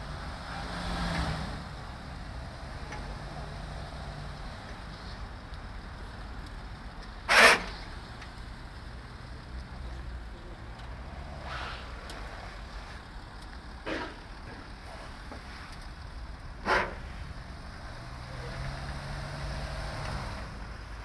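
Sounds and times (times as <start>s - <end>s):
vehicle engine low rumble: 0.0s - 21.0s
short sharp noises: 7.3s - 7.8s.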